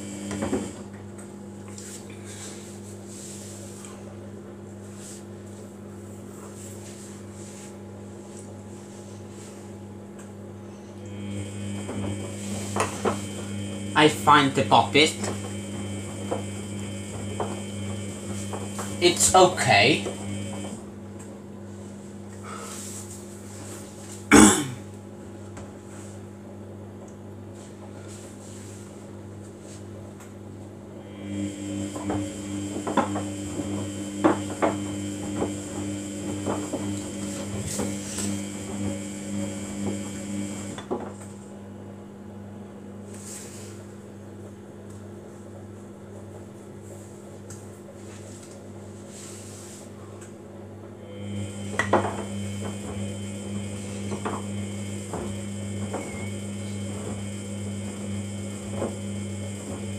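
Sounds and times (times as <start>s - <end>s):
steady low hum: 0.0s - 26.7s, 30.7s - 59.9s
washing machine drum turning: 15.2s - 20.8s.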